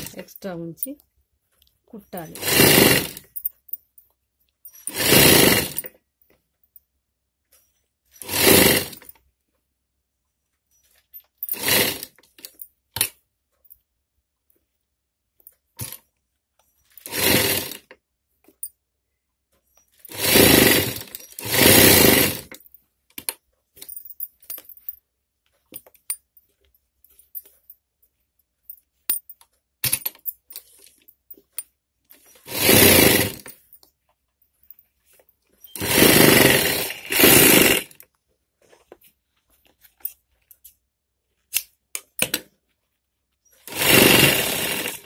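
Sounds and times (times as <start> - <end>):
sewing machine stitching: 0.0 - 0.3, 2.2 - 3.4, 4.8 - 5.9, 8.2 - 9.1, 11.4 - 12.5, 17.0 - 17.9, 20.1 - 22.6, 32.2 - 33.7, 35.7 - 38.0, 43.6 - 45.0.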